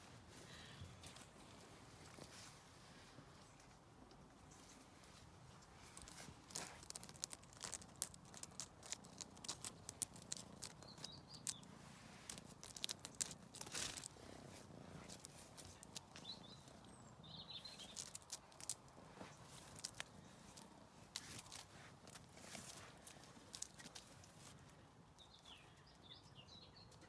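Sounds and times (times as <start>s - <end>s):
cat claws scratching bark: 5.8s - 16.9s, 17.6s - 24.8s.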